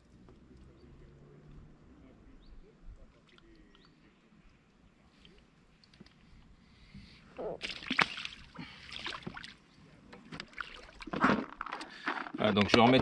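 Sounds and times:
fish splashing in water: 7.6s - 9.6s.

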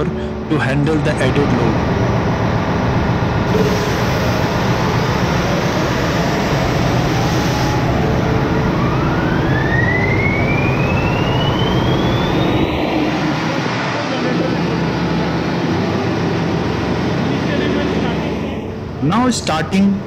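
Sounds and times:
diesel generators running: 0.0s - 20.0s
rising engine whine: 0.0s - 20.0s
hiss: 3.5s - 6.5s.

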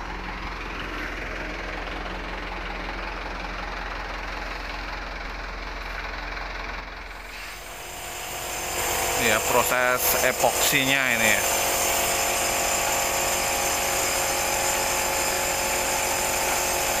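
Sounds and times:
air compressor pulsing hum: 0.0s - 17.0s
compressed air hissing from spray gun: 7.2s - 9.2s.

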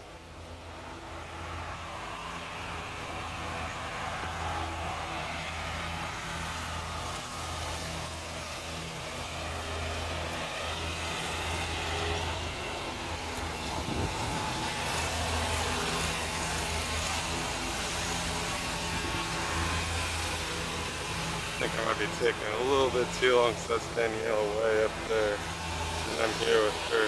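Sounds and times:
road traffic: 0.0s - 27.0s.

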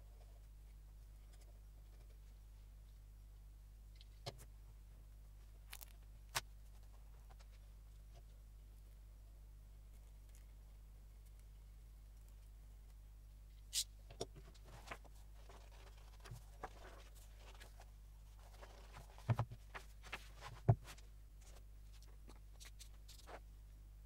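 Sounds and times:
paper rustling: 14.5s - 23.5s.

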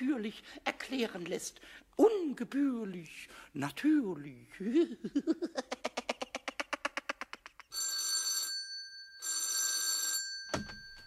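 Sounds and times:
electric doorbell ringing: 7.8s - 11.0s.

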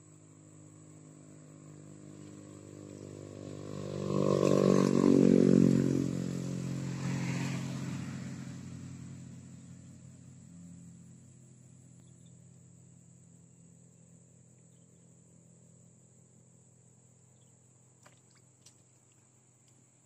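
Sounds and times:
vehicle engine passing by: 0.4s - 12.5s.

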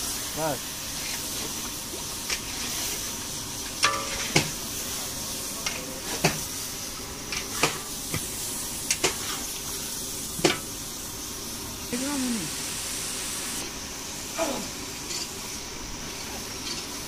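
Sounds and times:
food sizzling in pan: 0.0s - 17.0s
ladle clanking on pan: 3.8s - 4.6s.

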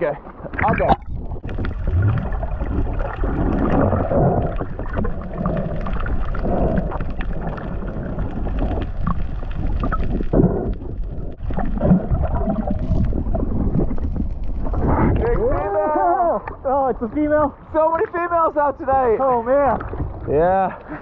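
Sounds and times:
underwater rush of water: 0.0s - 21.0s
clicks and crackles: 0.4s - 15.6s.

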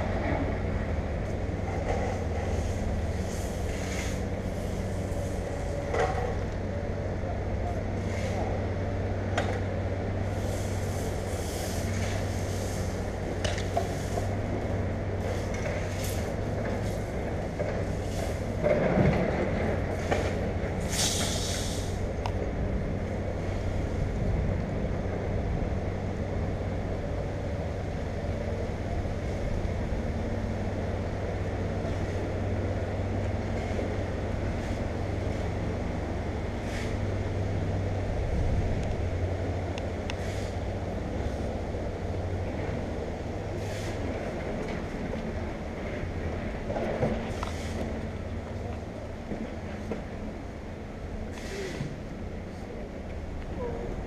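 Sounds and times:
brief hiss: 20.9s - 22.0s, 51.3s - 52.0s.

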